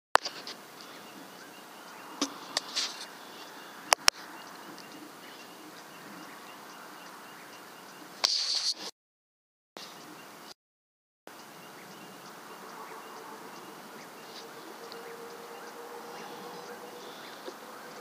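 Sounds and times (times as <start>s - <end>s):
steady low hiss: 0.2s - 8.9s, 11.3s - 18.0s
faint high chirping: 0.6s - 8.2s, 11.3s - 18.0s
sharp clicks: 1.4s - 5.1s.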